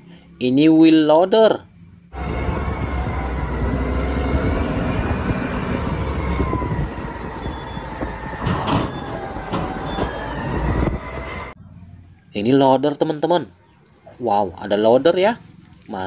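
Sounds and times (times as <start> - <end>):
heavy diesel rumble: 1.5 - 12.0
high squealing tones: 2.1 - 11.6.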